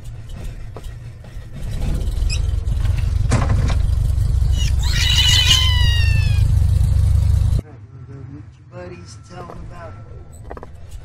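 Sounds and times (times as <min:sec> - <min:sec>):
high squeal falling in pitch: 0:04.5 - 0:06.5.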